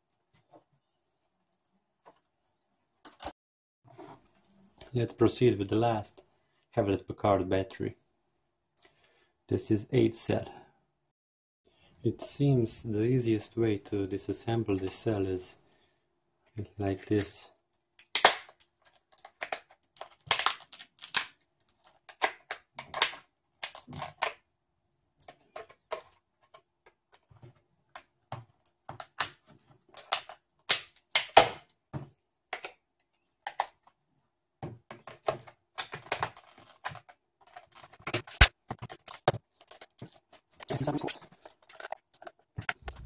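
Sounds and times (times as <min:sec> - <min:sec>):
plastic case cracking apart: 0:18.0 - 0:24.4, 0:28.9 - 0:31.7, 0:35.0 - 0:43.0.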